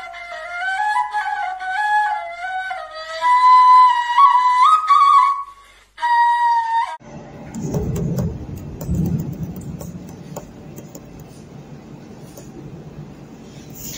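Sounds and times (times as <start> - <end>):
low rumbling noise: 7.0 - 13.9
faint clicks: 7.5 - 11.6.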